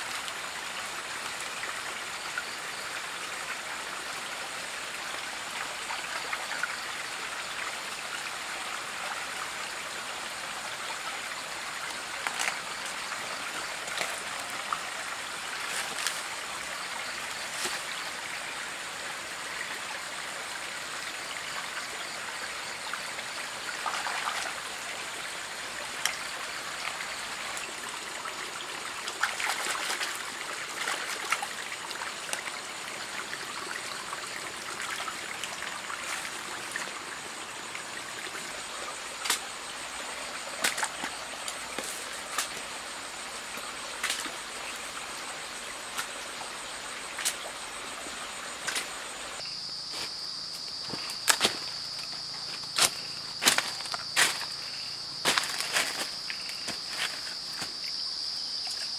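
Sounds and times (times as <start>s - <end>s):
rocky stream running: 0.0s - 58.9s
hands splashing among stones: 40.5s - 42.6s
banana leaf rustling: 55.2s - 57.8s.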